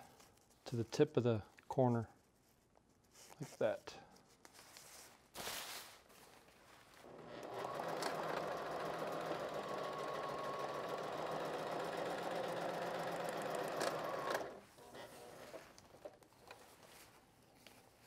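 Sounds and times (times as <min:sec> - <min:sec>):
sewing machine running: 0:07.1 - 0:16.1.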